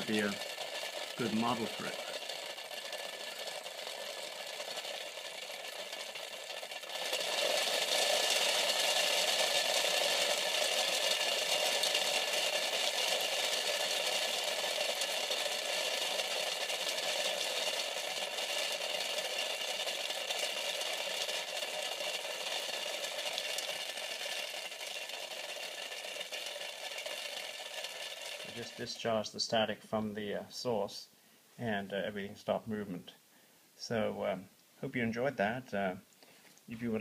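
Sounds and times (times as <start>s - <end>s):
foam balls rattling in plastic cover: 0.0s - 29.2s.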